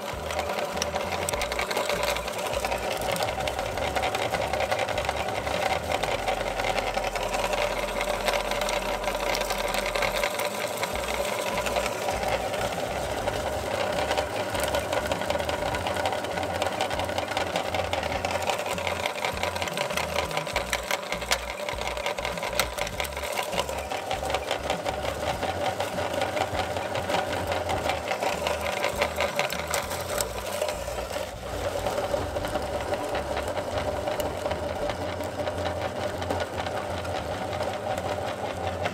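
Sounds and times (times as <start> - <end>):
candy crunching and clicking: 0.0 - 38.9
meat grinder motor hum: 0.0 - 38.9.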